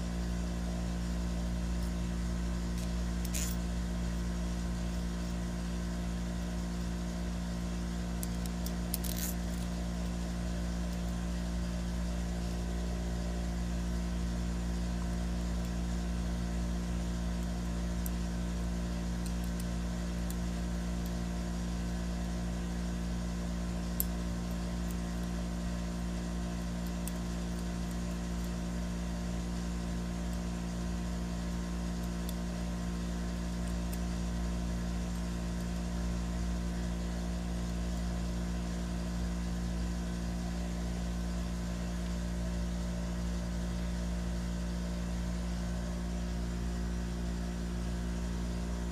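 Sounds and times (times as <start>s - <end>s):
low machine hum: 0.0s - 48.9s
metal parts clicking: 2.8s - 3.6s, 8.2s - 9.8s.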